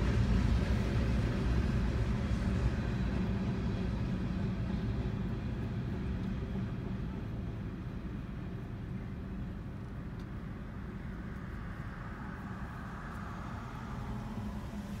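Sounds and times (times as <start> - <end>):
road noise: 0.0 - 15.0.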